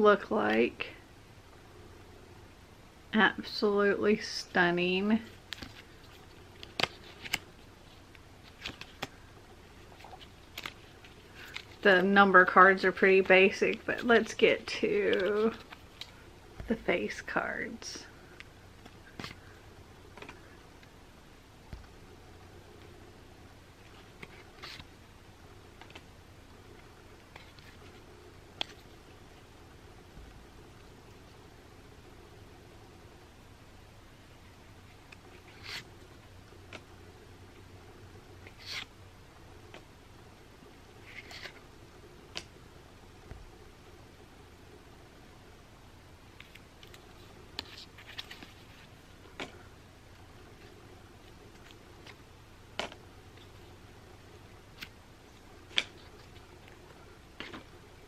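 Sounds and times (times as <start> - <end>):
playing cards clicking: 8.5 - 9.2, 10.0 - 11.8, 52.8 - 53.0.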